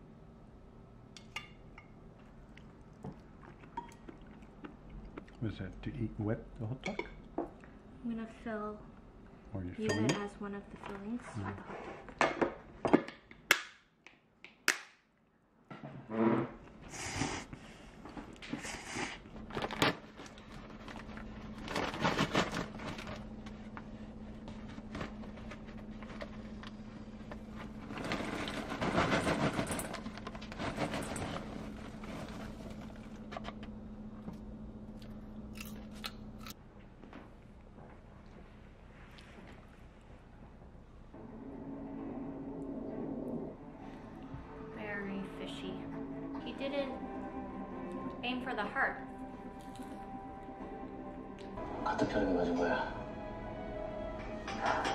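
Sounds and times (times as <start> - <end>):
popcorn rustling and rattling: 18.2 - 33.8
low hum: 19.3 - 54.9.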